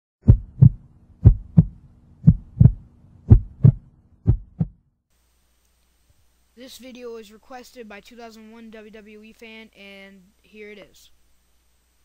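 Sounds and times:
heartbeat double thumps: 0:00.2 - 0:04.8.

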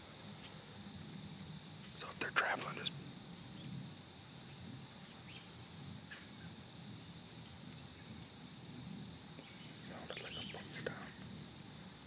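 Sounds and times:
low background rumble: 0:00.0 - 0:12.0
faint bird chirps: 0:04.5 - 0:06.6, 0:09.4 - 0:11.0.

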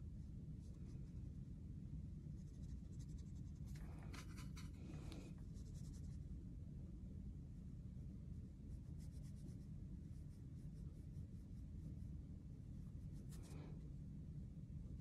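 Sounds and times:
steady low hum: 0:00.0 - 0:15.0
brush scrubbing paint in palette: 0:02.3 - 0:06.2, 0:08.4 - 0:13.8
paintbrush scratching on paper: 0:02.3 - 0:06.3, 0:08.6 - 0:12.2, 0:12.8 - 0:13.8.

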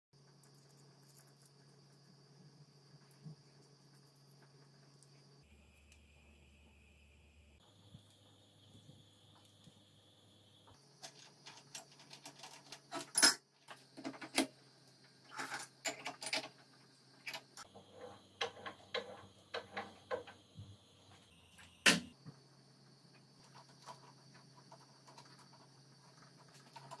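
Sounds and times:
metal tools clicking and clinking: 0:11.7 - 0:13.4, 0:15.3 - 0:16.5.

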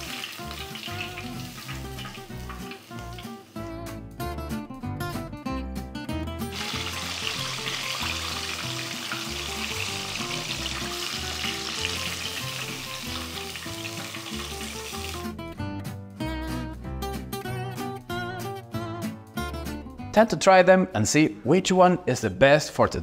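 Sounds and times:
chicken deep-frying in oil: 0:00.0 - 0:03.6, 0:06.5 - 0:15.3
acoustic guitar music: 0:00.0 - 0:20.7.

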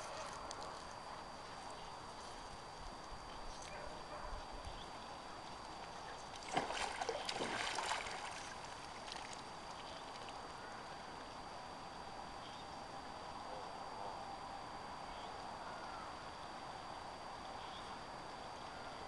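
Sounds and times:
water splash and slosh: 0:06.4 - 0:09.5.

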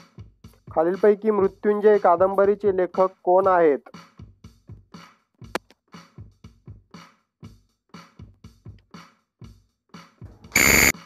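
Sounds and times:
drum machine beat: 0:00.0 - 0:09.6
bright electronic tone: 0:10.6 - 0:11.0.

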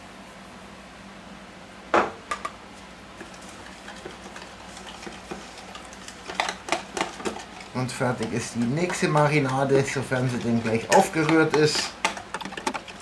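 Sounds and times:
utensil stirring in plastic tub: 0:03.1 - 0:13.0.

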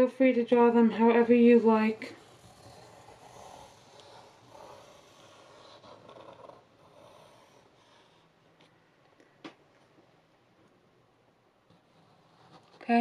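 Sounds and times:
pencil scratching on paper: 0:00.8 - 0:08.4, 0:11.7 - 0:13.0.

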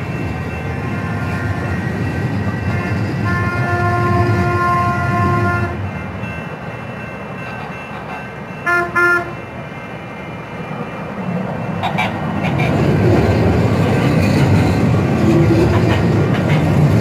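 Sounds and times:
trains rumbling along tracks: 0:00.0 - 0:17.0
train horn blast: 0:02.8 - 0:05.8, 0:08.6 - 0:09.4.

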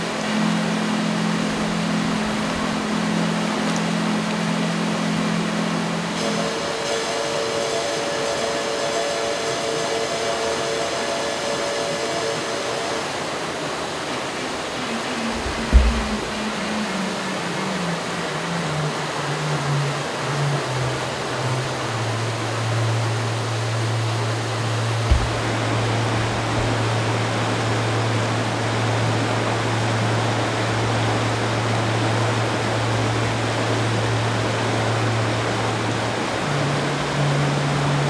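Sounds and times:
brook water rushing: 0:00.0 - 0:38.0
low held notes: 0:00.0 - 0:38.0
short knock: 0:15.6 - 0:16.3, 0:25.1 - 0:25.4.

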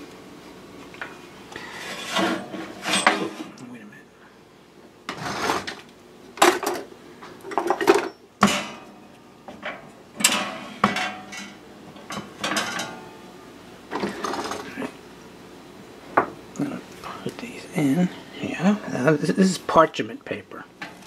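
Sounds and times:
metal tray clattering and scraping: 0:01.6 - 0:03.6, 0:05.1 - 0:05.8, 0:09.6 - 0:13.1, 0:13.9 - 0:14.8.

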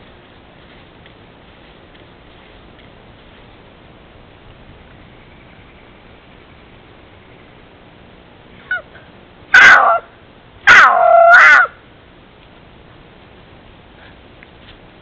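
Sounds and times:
panther wailing calls: 0:09.6 - 0:10.1, 0:10.7 - 0:11.8.

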